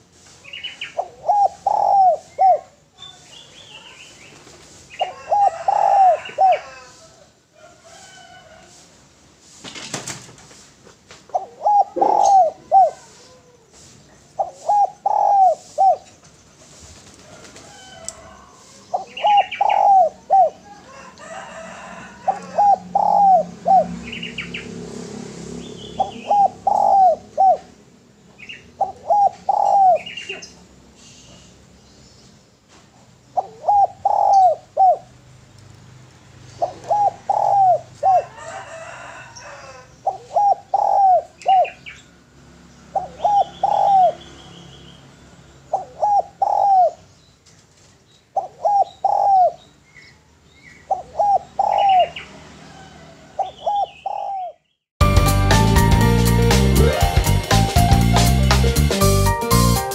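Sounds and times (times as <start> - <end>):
dove cooing: 1.0 - 2.8, 5.0 - 8.2, 11.3 - 16.2, 17.3 - 24.6, 25.9 - 27.8, 28.7 - 30.6, 33.3 - 35.1, 36.5 - 41.8, 42.9 - 44.2, 45.7 - 47.1, 48.4 - 49.7, 50.7 - 54.6.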